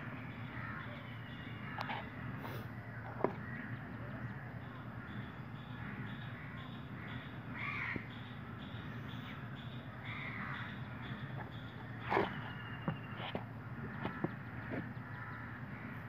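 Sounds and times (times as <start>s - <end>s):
steady low hum: 0.0s - 16.0s
crow cawing: 5.8s - 8.1s, 10.0s - 11.2s, 13.9s - 16.0s.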